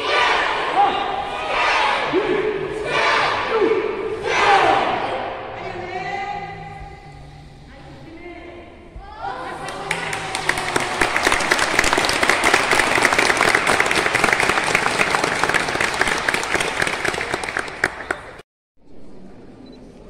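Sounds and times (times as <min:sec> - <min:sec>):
people applauding: 0:09.6 - 0:18.4.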